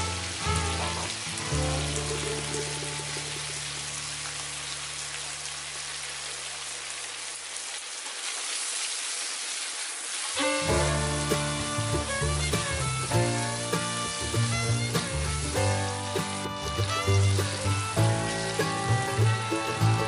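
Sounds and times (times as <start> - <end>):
background music low note: 0.0 - 4.7, 10.4 - 20.0
tomatoes sizzling in hot oil: 0.0 - 20.0.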